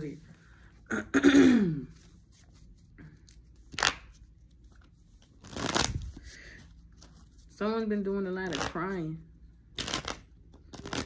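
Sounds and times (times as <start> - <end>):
cards being shuffled: 2.0 - 7.5, 8.4 - 8.9, 9.7 - 11.0.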